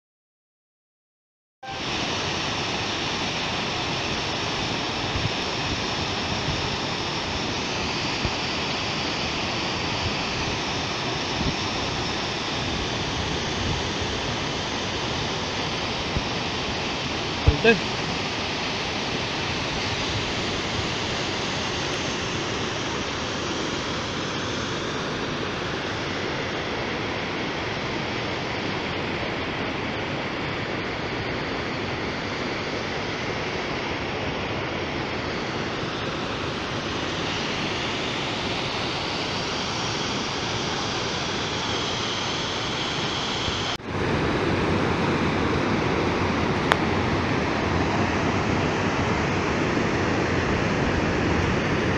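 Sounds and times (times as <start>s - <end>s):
waterfall rushing over rocks: 1.7s - 26.4s.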